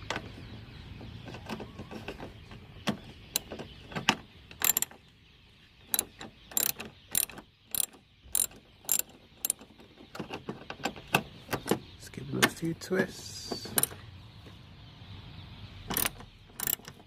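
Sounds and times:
ratchet wrench clicking: 4.6s - 4.9s, 5.9s - 9.6s, 15.9s - 17.0s.

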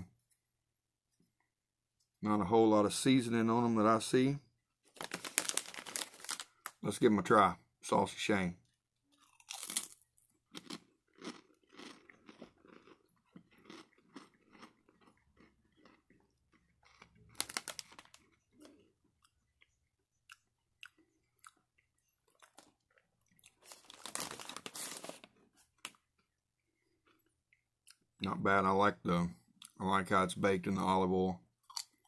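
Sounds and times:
person crunching crispy food: 4.9s - 6.8s, 9.1s - 19.0s, 22.2s - 26.0s.

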